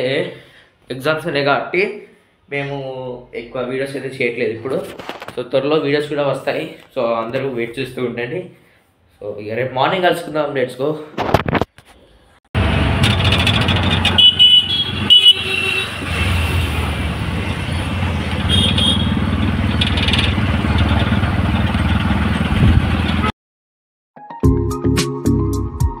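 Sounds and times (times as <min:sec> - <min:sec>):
auto-rickshaw engine running: 0:12.6 - 0:23.3
road noise: 0:12.6 - 0:23.3
horn toots: 0:14.0 - 0:16.9, 0:18.4 - 0:19.4.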